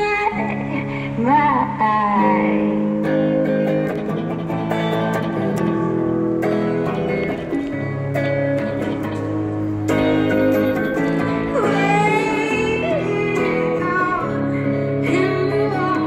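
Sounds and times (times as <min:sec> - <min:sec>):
woman singing: 0:00.0 - 0:02.9, 0:11.5 - 0:16.0
electric guitar strumming chords: 0:00.0 - 0:16.0.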